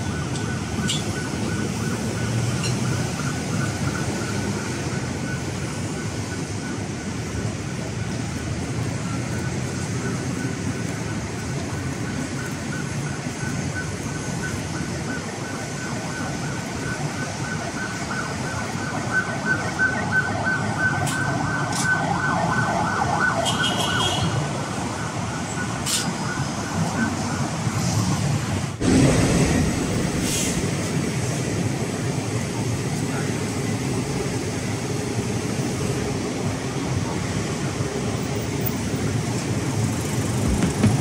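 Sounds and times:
city street traffic: 0.0s - 41.0s
emergency vehicle siren: 0.0s - 41.0s
loud low rumble: 28.8s - 31.8s.

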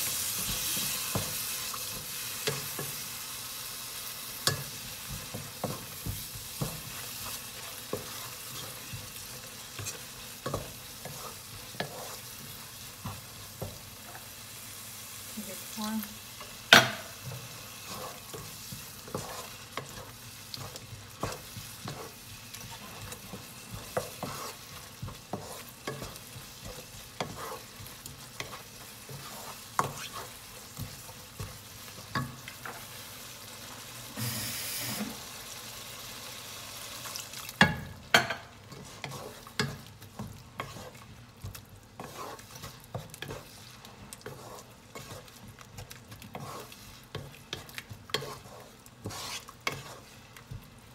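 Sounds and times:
sauce sizzling and bubbling: 0.0s - 50.9s
wooden spatula scraping pan: 4.4s - 14.4s, 15.7s - 33.0s, 38.2s - 50.7s.

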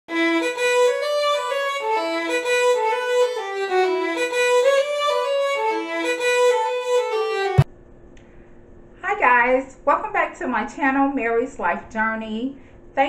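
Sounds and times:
music with held notes: 0.1s - 7.7s
click: 8.1s - 8.3s.

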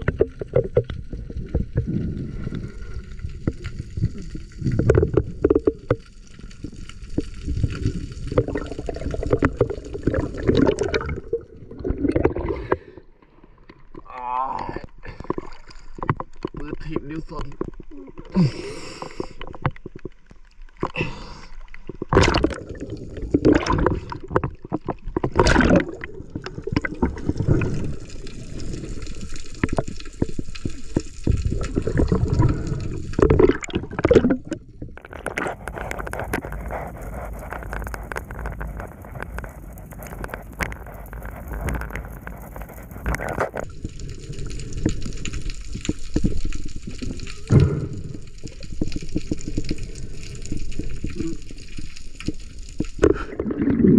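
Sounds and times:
water splashes: 0.0s - 13.0s, 19.0s - 53.9s
water sloshing and gurgling: 0.0s - 53.9s.

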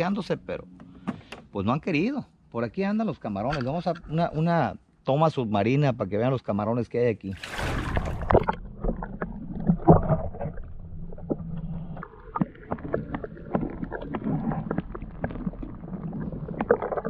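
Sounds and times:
underwater rumble of moving water: 7.4s - 17.0s.

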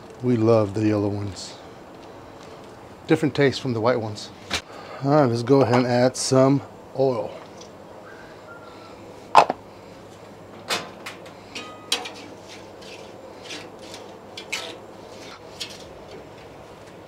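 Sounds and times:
metal spatula scraping griddle: 11.5s - 16.0s.

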